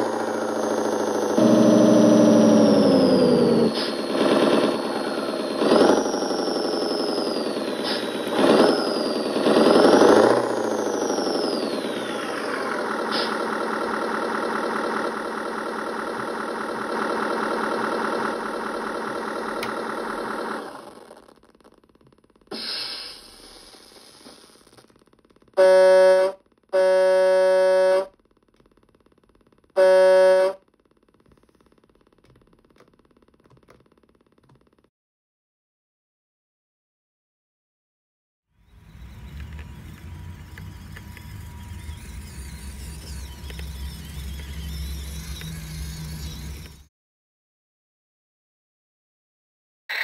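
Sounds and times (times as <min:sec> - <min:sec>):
simulated truck engine revving: 0:00.0 - 0:28.1, 0:38.6 - 0:46.9
simulated truck horn blasts: 0:01.2 - 0:03.7, 0:25.6 - 0:28.2, 0:29.8 - 0:30.6
short hiss: 0:22.5 - 0:23.3.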